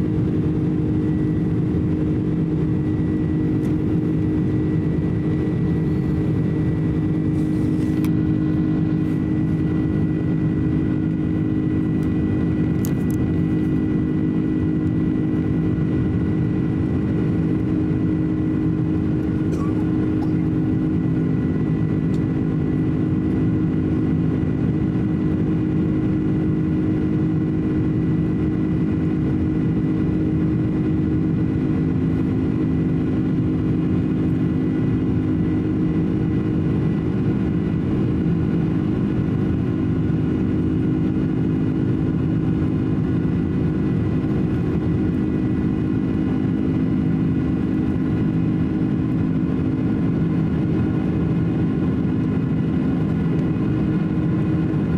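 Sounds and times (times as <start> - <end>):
airliner engine drone in cabin: 0.0 - 54.9.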